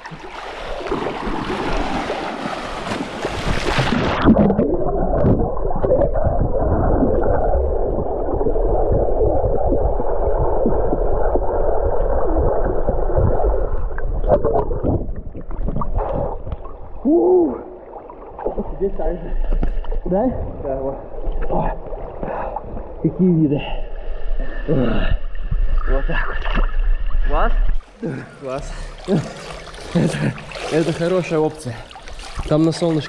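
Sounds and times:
muffled underwater rushing: 0:00.0 - 0:23.0.

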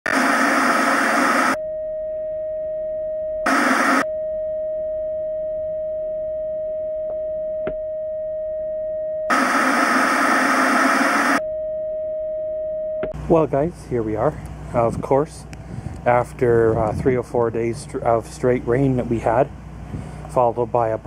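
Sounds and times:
tv static hiss: 0:00.0 - 0:01.6, 0:03.5 - 0:04.0, 0:09.3 - 0:11.4
steady electronic tone: 0:00.0 - 0:14.0.

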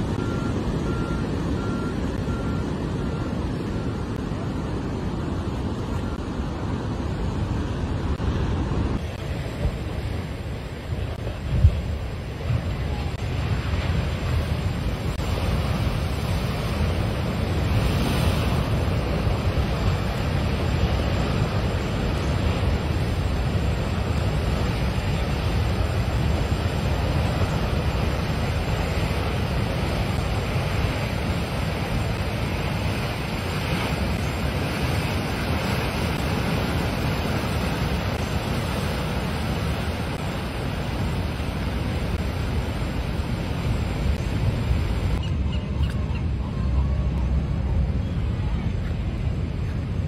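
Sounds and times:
wind rumbling on microphone: 0:00.0 - 0:50.0
surf crashing against rocks: 0:07.2 - 0:45.2.

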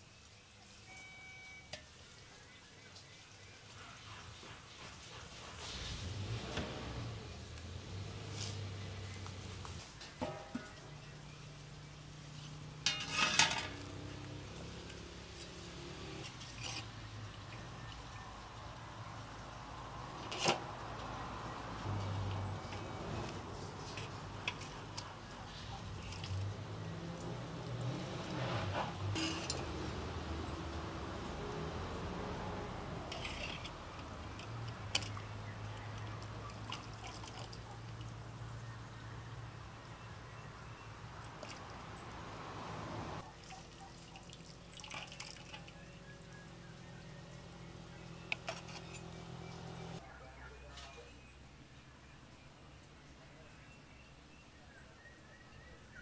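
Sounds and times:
broth dripping and splashing: 0:07.3 - 0:50.0
metal clatter: 0:10.0 - 0:10.8, 0:12.8 - 0:14.0, 0:28.4 - 0:29.8
metal pot lid clinking: 0:10.2 - 0:10.8, 0:12.8 - 0:13.9, 0:29.2 - 0:29.7
ladle clinking against pot: 0:10.2 - 0:10.9, 0:12.8 - 0:13.9, 0:29.2 - 0:29.7.

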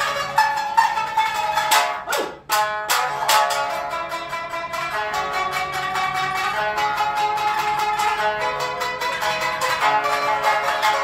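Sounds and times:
shamisen playing in unison: 0:00.0 - 0:11.0.

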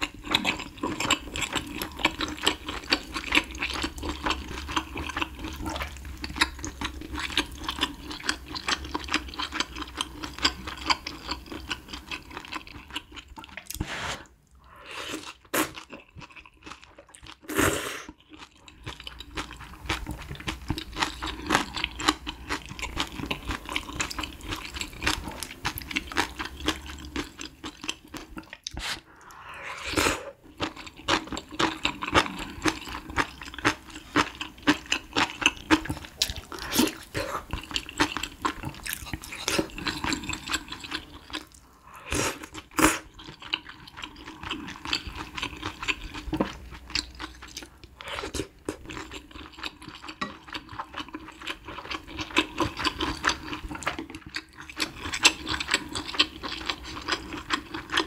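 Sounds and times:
chewing noodles: 0:00.0 - 0:58.0
slurping from a spoon: 0:13.5 - 0:15.9, 0:17.5 - 0:18.2, 0:28.6 - 0:30.5, 0:36.3 - 0:48.6.

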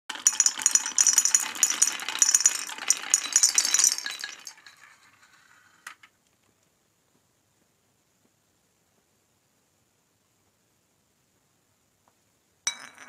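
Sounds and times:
marbles clattering down wooden slope: 0:00.1 - 0:06.1.

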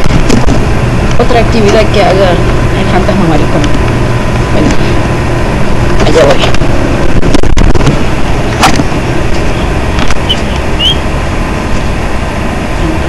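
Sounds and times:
phone handling rumble: 0:05.9 - 0:10.8
short high squeaks: 0:10.2 - 0:11.0.

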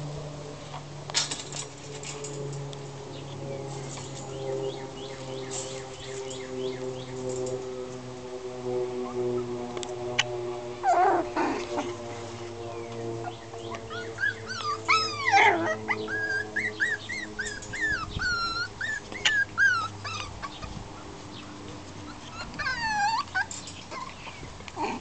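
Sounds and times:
steady low hum: 0:00.0 - 0:25.0
puppies whimpering and yipping: 0:10.8 - 0:12.0, 0:13.2 - 0:25.0.

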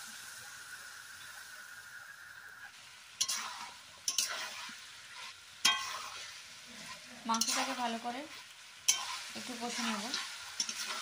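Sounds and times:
meat sizzling in hot oil: 0:00.0 - 0:11.0
metal spatula scraping pan: 0:03.2 - 0:11.0.

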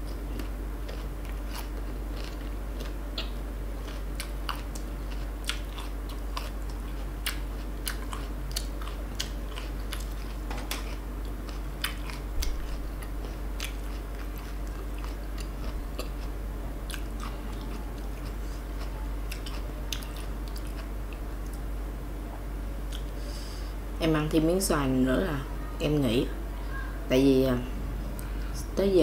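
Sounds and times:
crunchy chewing: 0:00.0 - 0:21.6
steady low hum: 0:00.0 - 0:29.0.

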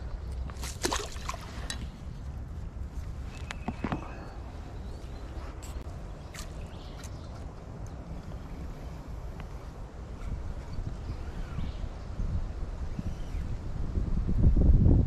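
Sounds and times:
wind rumble on microphone: 0:00.0 - 0:15.0
small water splashes: 0:00.5 - 0:01.9.

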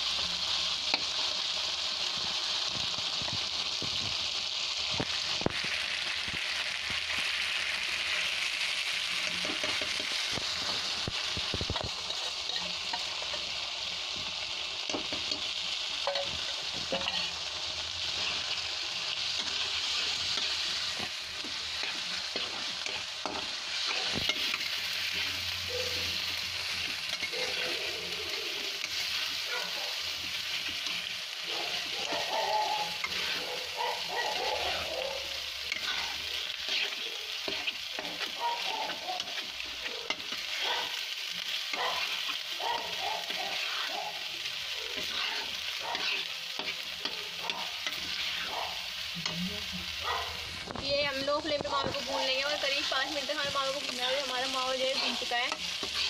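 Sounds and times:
sizzling in ghee: 0:00.0 - 0:56.0
metal spatula scraping pan: 0:16.0 - 0:17.4, 0:19.3 - 0:29.4, 0:30.2 - 0:34.9, 0:35.6 - 0:40.9, 0:44.9 - 0:48.6, 0:52.8 - 0:56.0.

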